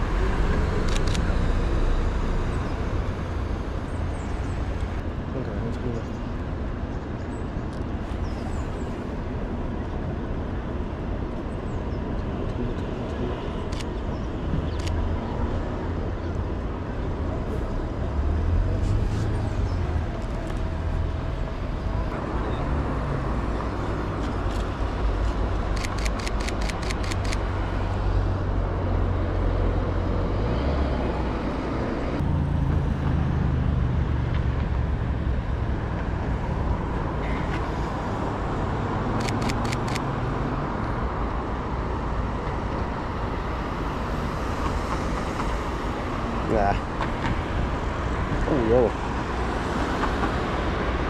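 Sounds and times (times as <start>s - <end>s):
street traffic rumble: 0.0s - 51.0s
camera shutter clicking in burst: 25.8s - 27.4s, 39.2s - 40.0s.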